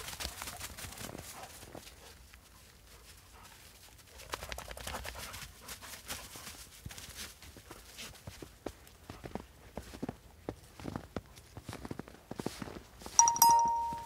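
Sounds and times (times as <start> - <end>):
footsteps crunching in snow: 6.2 - 13.2.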